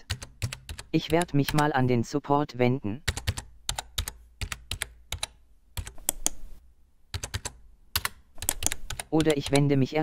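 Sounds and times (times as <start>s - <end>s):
keyboard typing clicks: 0.0s - 1.8s, 3.1s - 6.4s, 7.1s - 9.8s.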